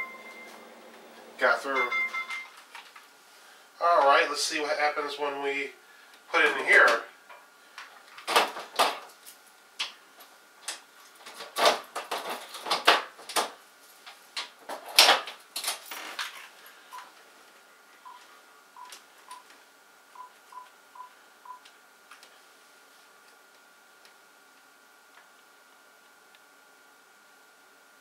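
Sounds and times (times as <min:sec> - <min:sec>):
phone keypad beeps: 0:00.0 - 0:00.6, 0:01.8 - 0:02.6.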